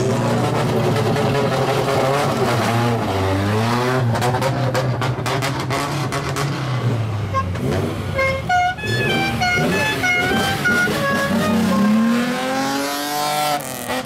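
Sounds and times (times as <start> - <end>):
car exhaust revving: 0.0 - 14.0
melodic horn playing a tune: 8.2 - 12.7.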